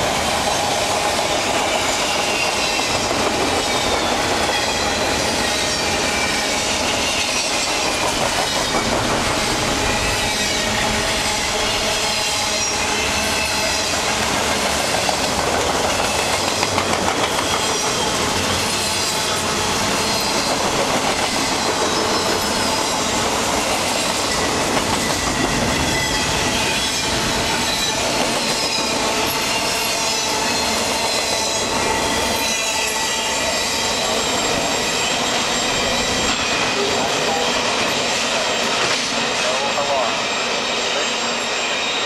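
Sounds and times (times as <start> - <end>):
steel wheels rumbling on rail: 0.0 - 42.0
wheels clacking over rail joints: 0.6 - 10.5, 14.0 - 32.9.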